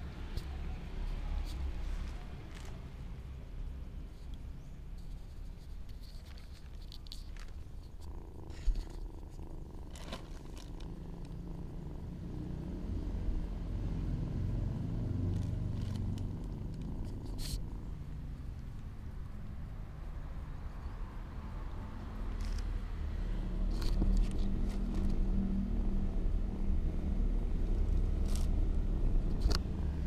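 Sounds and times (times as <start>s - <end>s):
kitten purring: 4.0s - 21.0s.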